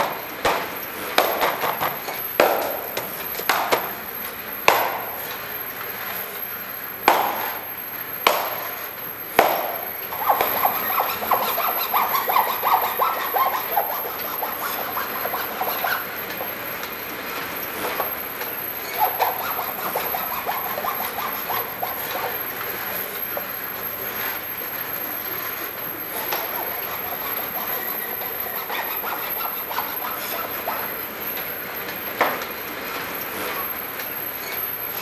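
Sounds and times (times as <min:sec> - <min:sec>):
sharp knocks: 0:00.0 - 0:04.0, 0:04.7 - 0:05.2, 0:07.1 - 0:07.6, 0:08.2 - 0:08.8, 0:09.4 - 0:11.5
hand saw cutting wood: 0:09.4 - 0:16.6, 0:18.8 - 0:22.5, 0:26.2 - 0:31.0.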